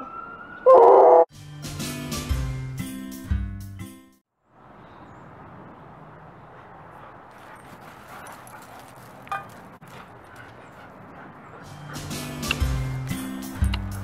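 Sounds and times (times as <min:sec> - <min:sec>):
paws scuffling on gravel: 0:07.0 - 0:11.3.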